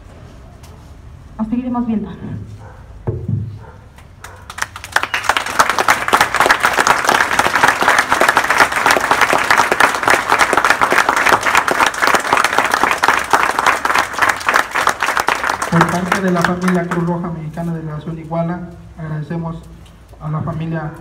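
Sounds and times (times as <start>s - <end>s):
crowd applauding: 4.2s - 17.2s.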